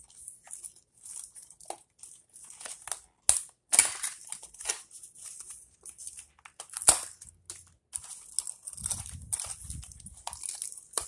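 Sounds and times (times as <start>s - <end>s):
cardboard box rustling and crinkling: 8.0s - 11.0s.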